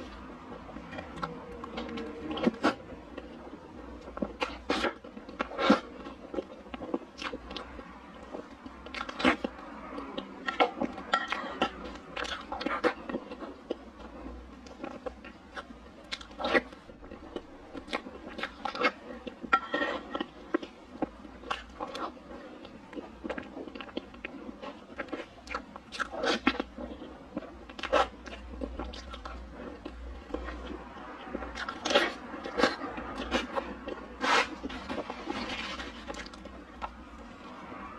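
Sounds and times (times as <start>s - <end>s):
chewing and mouth smacks: 11.6s - 37.0s.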